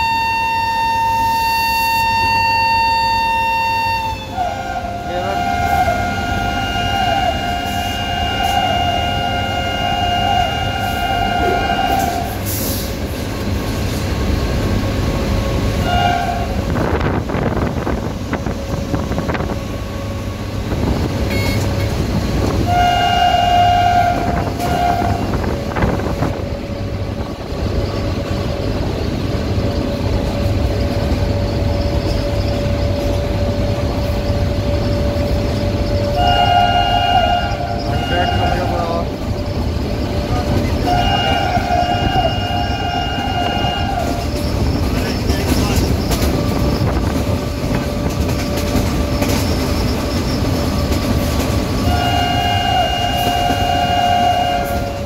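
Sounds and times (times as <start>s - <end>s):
locomotive horn blasts: 0.0s - 12.4s, 15.8s - 16.9s, 21.3s - 21.9s, 22.6s - 26.5s, 36.0s - 39.2s, 40.4s - 44.6s, 51.8s - 55.0s
locomotive rumbling on track: 0.0s - 55.0s.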